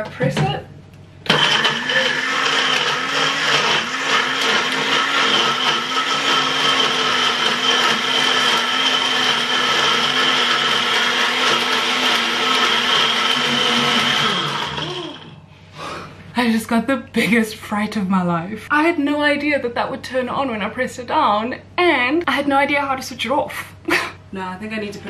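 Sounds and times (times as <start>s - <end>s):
blender running: 1.2s - 15.4s.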